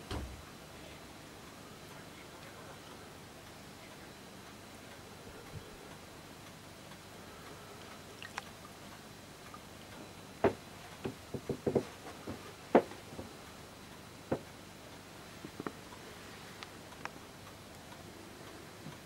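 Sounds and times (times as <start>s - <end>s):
sharp irregular knocks and clicks: 10.4s - 13.3s, 14.3s - 14.6s.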